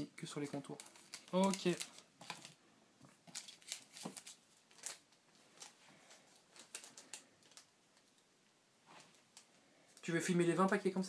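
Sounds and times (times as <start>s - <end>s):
hands handling trading cards: 0.7s - 8.1s.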